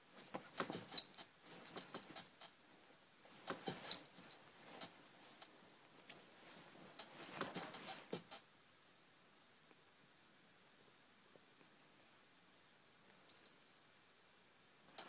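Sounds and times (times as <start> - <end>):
cat rustling a blanket: 0.1 - 8.3
collar tag clinking: 0.2 - 2.4, 13.3 - 13.8.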